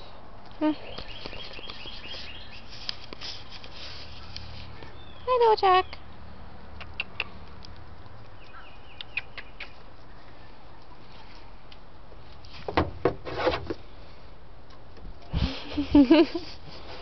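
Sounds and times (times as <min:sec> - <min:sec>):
small chirps: 0:00.7 - 0:05.3, 0:06.8 - 0:11.1.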